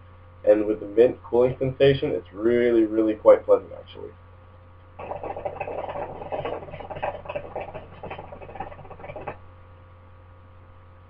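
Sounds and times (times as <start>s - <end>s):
hookah water bubbling: 5.0s - 9.4s.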